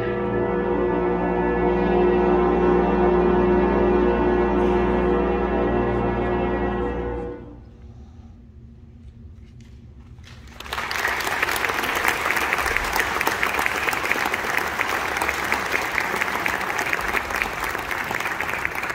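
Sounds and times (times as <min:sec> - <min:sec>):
audience applauding: 0:10.4 - 0:18.9.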